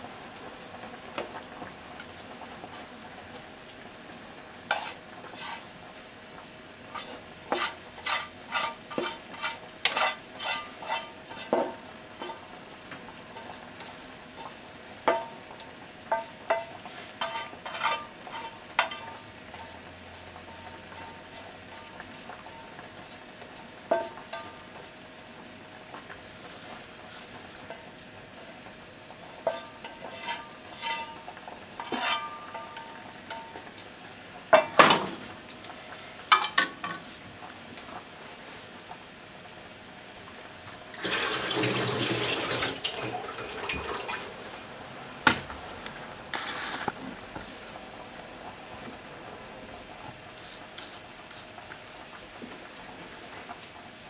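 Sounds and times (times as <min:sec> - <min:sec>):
pan sizzling: 0:00.0 - 0:54.0
chopsticks scraping a frying pan: 0:04.7 - 0:05.7, 0:06.9 - 0:12.5, 0:13.3 - 0:25.0, 0:29.3 - 0:33.5, 0:46.3 - 0:47.1, 0:50.4 - 0:51.5.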